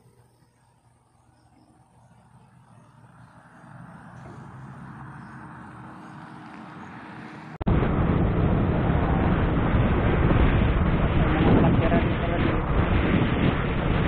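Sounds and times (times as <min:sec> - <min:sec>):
faint low hum: 0:00.0 - 0:07.4
motorcycle engine: 0:00.8 - 0:14.0
rushing wind: 0:02.2 - 0:14.0.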